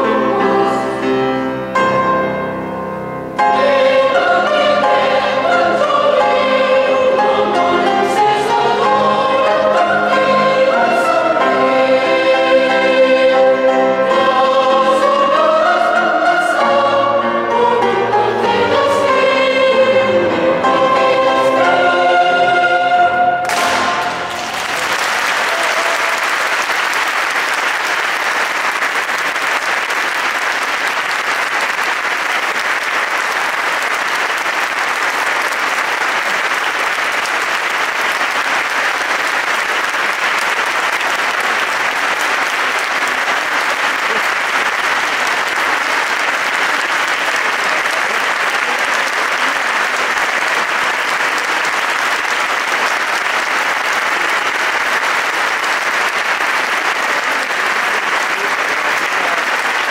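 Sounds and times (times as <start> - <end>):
audience applauding: 23.4 - 59.9.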